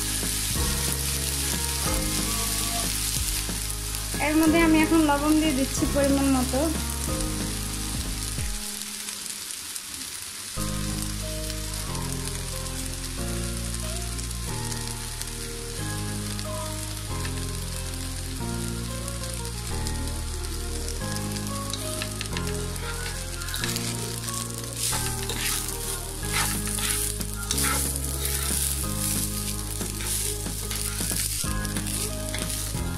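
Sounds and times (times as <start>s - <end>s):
background music with low notes: 0.0s - 9.2s, 10.6s - 32.9s
rice sizzling in hot oil: 0.0s - 32.9s
spatula stirring: 22.0s - 32.9s.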